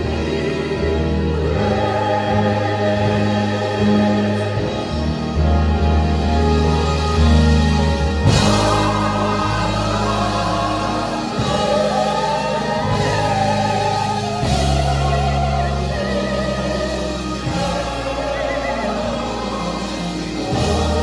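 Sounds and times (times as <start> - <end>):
gospel choir singing: 0.0 - 21.0
low accompaniment chords: 0.0 - 21.0.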